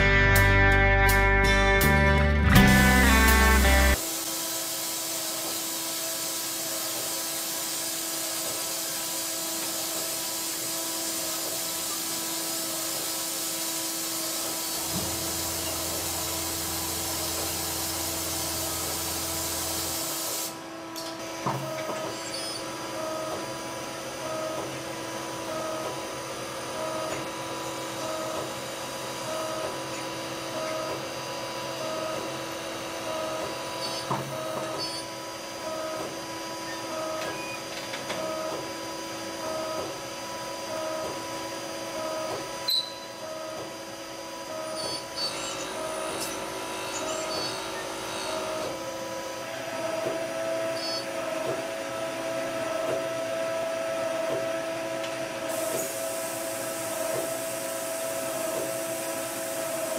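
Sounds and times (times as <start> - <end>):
lathe machine hum and whine: 2.7 - 59.9.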